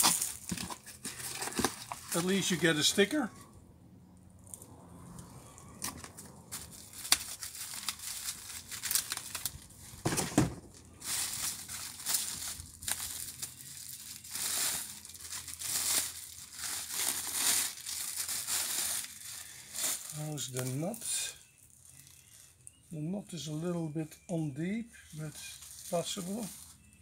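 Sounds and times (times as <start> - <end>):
plastic bag crinkling: 0.0 - 2.8, 6.5 - 22.8.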